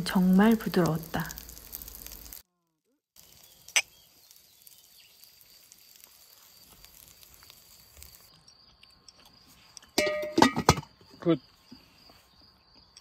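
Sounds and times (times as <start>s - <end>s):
insects humming: 3.2s - 13.0s
beer glasses clinking: 10.0s - 10.8s.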